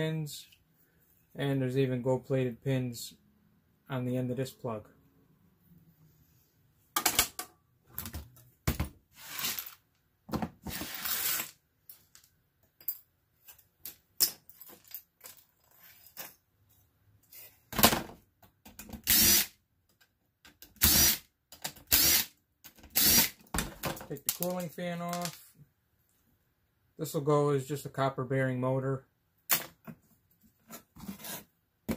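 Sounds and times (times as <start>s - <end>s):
cordless drill running: 19.1s - 19.4s, 23.0s - 23.3s.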